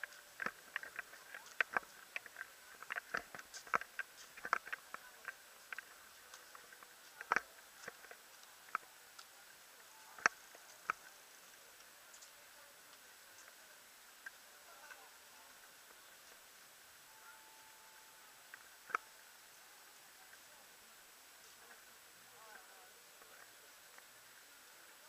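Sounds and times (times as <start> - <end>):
light clicks and taps: 0.0 - 9.5, 10.1 - 15.1
faint steady hiss: 0.0 - 25.0.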